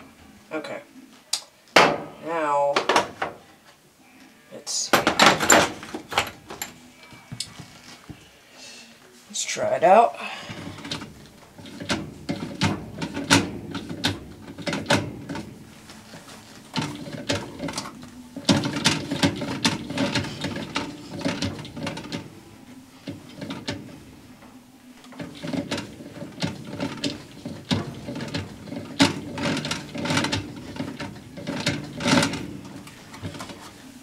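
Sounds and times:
washer agitator clicks and knocks: 0:01.8 - 0:02.2, 0:04.9 - 0:06.7, 0:10.5 - 0:34.0.

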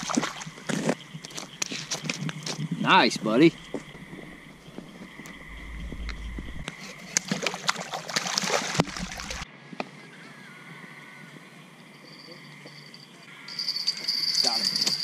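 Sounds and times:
splashing in shallow water: 0:00.0 - 0:01.0, 0:06.7 - 0:09.4
night insects chirring: 0:00.0 - 0:09.4, 0:10.0 - 0:15.0.

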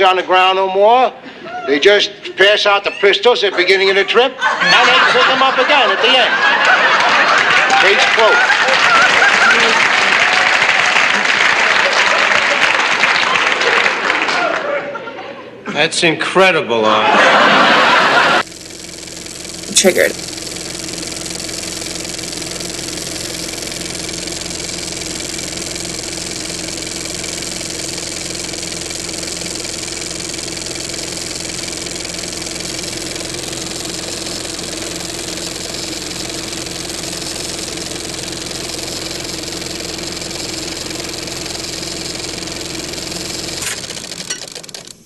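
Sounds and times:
television static hiss: 0:02.4 - 0:13.8, 0:16.0 - 0:45.0
low hum: 0:17.8 - 0:45.0.

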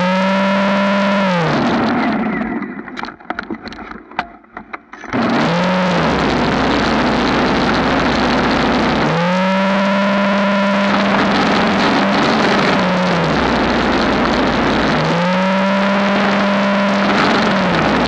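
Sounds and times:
snow thrower churning snow: 0:00.0 - 0:02.8, 0:05.1 - 0:18.0
snow thrower motor whine: 0:00.0 - 0:03.4, 0:05.0 - 0:18.0
faint clicks and crunches: 0:01.9 - 0:05.2.

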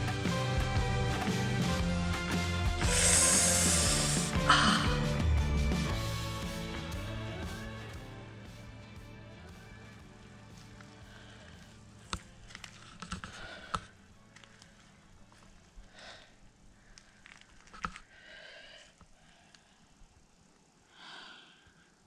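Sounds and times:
background music: 0:00.0 - 0:15.6
handling noises: 0:10.7 - 0:15.9.

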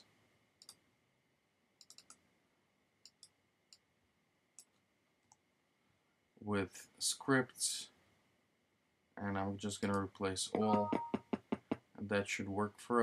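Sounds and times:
keyboard and mouse clicks: 0:01.8 - 0:02.2.

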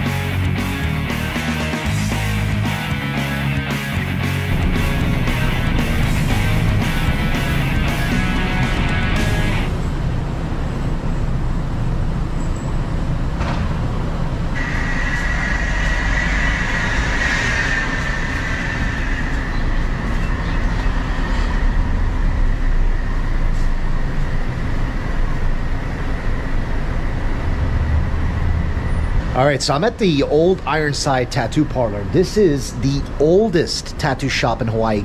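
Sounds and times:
low rumble of traffic: 0:02.0 - 0:35.0
thin high whine: 0:14.6 - 0:27.3.

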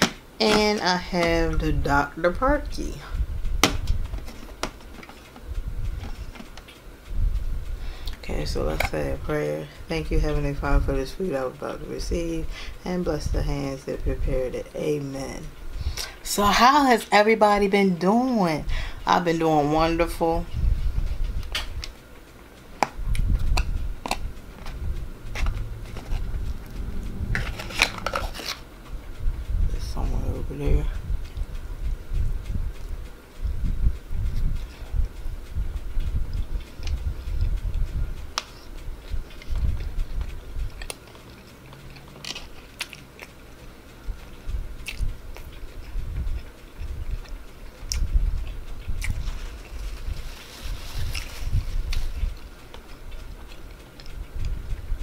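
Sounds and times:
person chewing food: 0:22.7 - 0:28.7, 0:36.0 - 0:54.6
low thumps: 0:22.9 - 0:30.0.

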